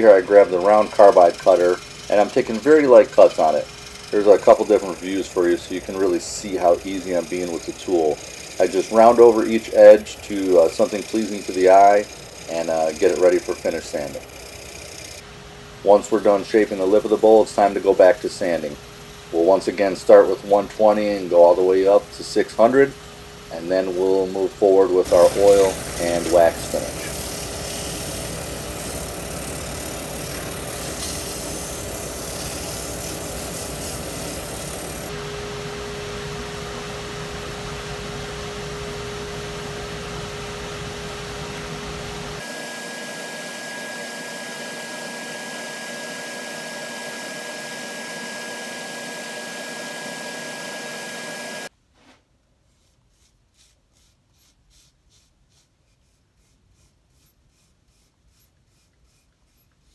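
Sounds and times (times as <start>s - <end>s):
wood lathe whirring hiss: 0.0s - 15.2s, 15.8s - 35.2s, 38.9s - 51.7s
cloth rubbing on bowl: 52.0s - 59.9s.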